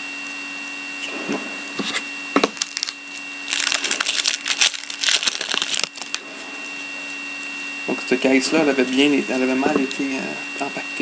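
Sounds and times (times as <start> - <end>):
faint steady whine: 0.0 - 11.0
foil wrapper crackling: 2.4 - 6.2.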